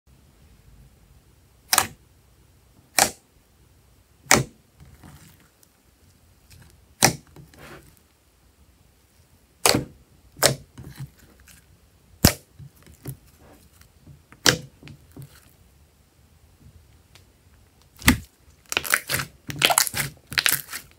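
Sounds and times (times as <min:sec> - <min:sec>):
slime squishing: 0:04.2 - 0:05.7, 0:06.4 - 0:08.0, 0:09.6 - 0:15.6, 0:17.8 - 0:20.9
slime popping: 0:17.9 - 0:20.9.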